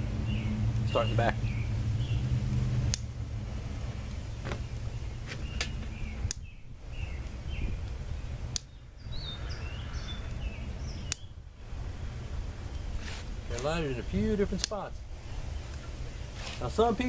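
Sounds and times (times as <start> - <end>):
birds chirping faintly: 0.0 - 17.0
steady low rumble: 0.0 - 17.0
torch lighter clicking: 11.1 - 11.3.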